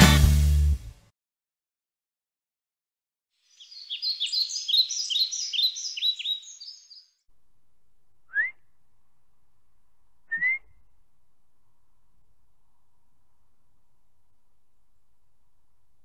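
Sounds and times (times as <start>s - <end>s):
faint outdoor background: 3.3s - 16.0s
songbird twittering: 3.4s - 7.2s, 8.3s - 8.7s, 10.3s - 10.8s
short rising whistles: 8.3s - 8.6s, 10.3s - 10.8s.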